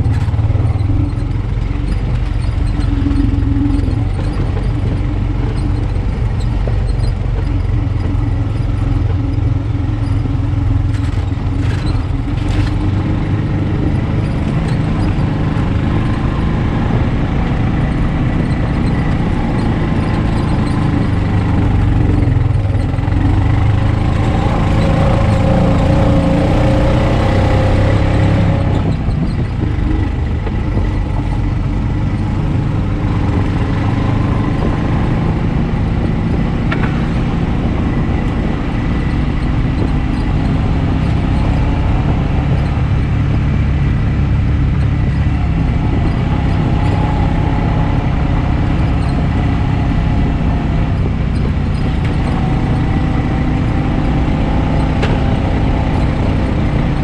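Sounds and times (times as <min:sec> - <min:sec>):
sharp clatters: 0:00.0 - 0:57.0
single-cylinder engine running: 0:00.0 - 0:57.0.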